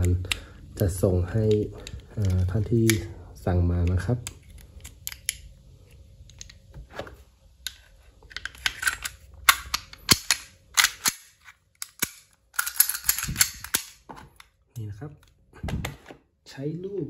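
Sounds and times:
pistol slide clicks and clacks: 8.4s - 14.0s.

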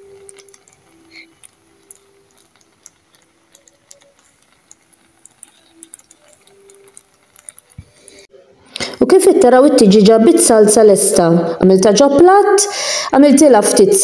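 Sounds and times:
sauce simmering with small pops: 0.0s - 8.9s.

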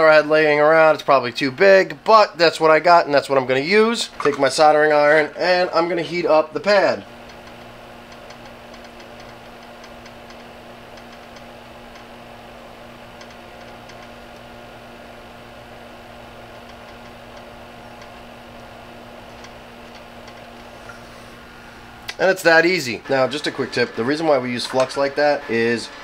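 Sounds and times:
small fan humming: 0.0s - 26.0s
soldering iron ticking on solder: 7.2s - 12.1s, 16.5s - 18.2s.

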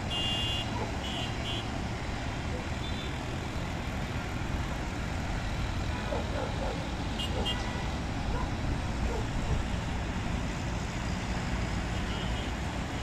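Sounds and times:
road traffic: 0.0s - 13.0s
short vehicle horn beeps: 0.1s - 1.7s.

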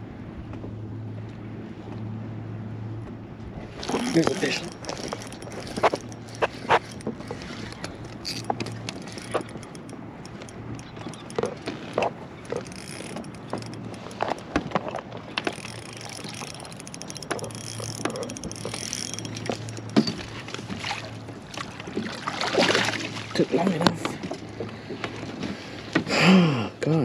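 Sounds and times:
fishing reel cranking and ratcheting: 3.8s - 14.6s, 15.3s - 21.7s
sharp clicks and knocks: 3.8s - 20.8s.

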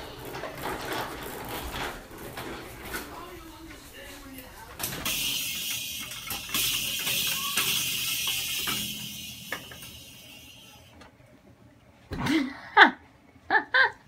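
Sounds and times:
toy drum hits: 5.1s - 10.8s
small cymbal ringing: 5.1s - 11.0s.

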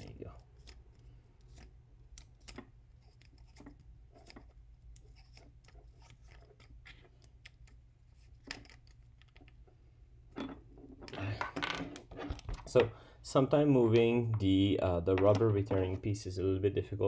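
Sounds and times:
small clicks and scrapes of connector: 0.3s - 9.7s.

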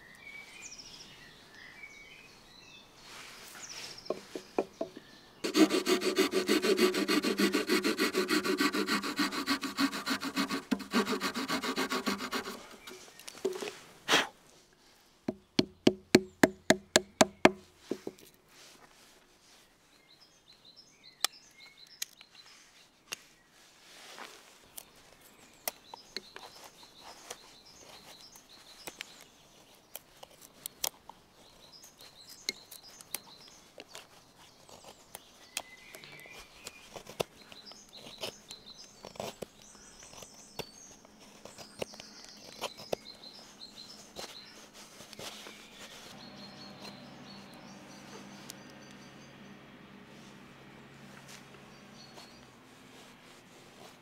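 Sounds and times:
small birds chirping: 0.0s - 13.9s, 14.8s - 54.0s
knife whittling wood: 5.4s - 14.3s.

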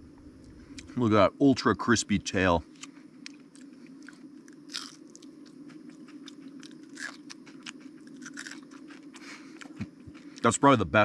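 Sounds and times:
steady low hum: 0.0s - 11.0s
crunching and chewing crispy food: 2.7s - 10.8s.

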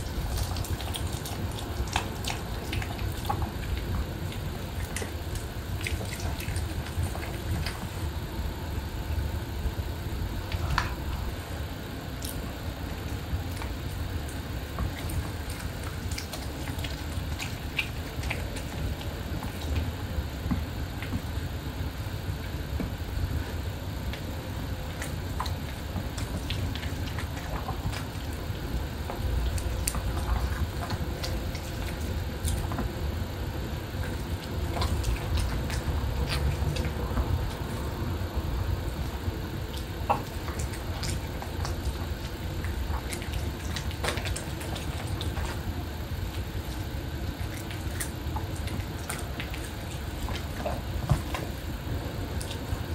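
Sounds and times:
small clicks and smacks: 0.0s - 8.1s, 12.2s - 21.3s, 39.0s - 51.6s
dogs chewing and licking: 0.0s - 8.3s, 10.3s - 21.5s, 22.2s - 52.9s
steady low rumble: 0.0s - 52.9s.

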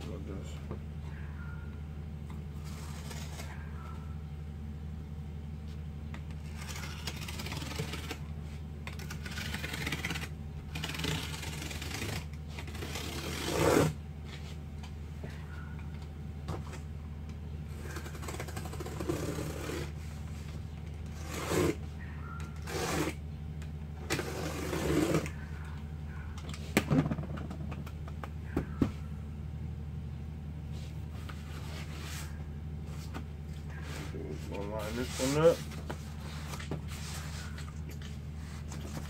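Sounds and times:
steady low hum: 0.0s - 39.0s
cardboard rustling and scraping: 2.5s - 3.7s, 5.6s - 14.6s, 17.7s - 21.8s, 24.0s - 25.4s, 30.8s - 39.0s.

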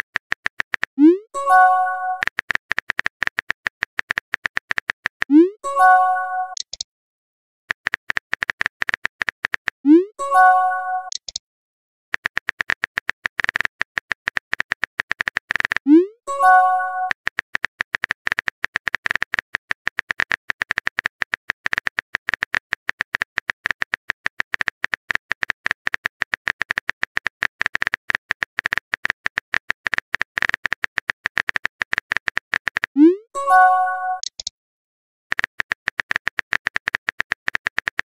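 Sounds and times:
keyboard typing clicks: 0.0s - 6.9s, 7.7s - 11.4s, 12.2s - 34.5s, 35.3s - 38.0s
message sent chime: 1.4s - 2.2s, 5.3s - 6.6s, 10.0s - 11.1s, 16.3s - 17.1s, 33.0s - 34.3s.

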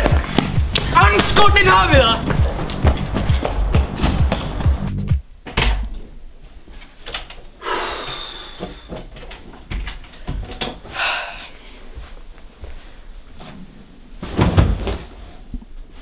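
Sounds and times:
background music with a beat: 0.0s - 5.2s
handling knocks and rustles: 12.0s - 16.0s.

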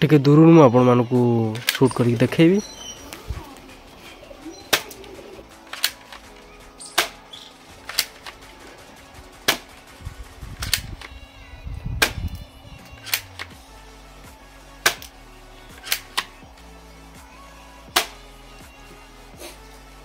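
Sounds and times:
toy gun shots snapping: 1.6s - 1.9s, 4.7s - 8.5s, 9.4s - 9.8s, 10.6s - 11.2s, 12.0s - 13.6s, 14.8s - 16.4s, 17.9s - 18.2s.

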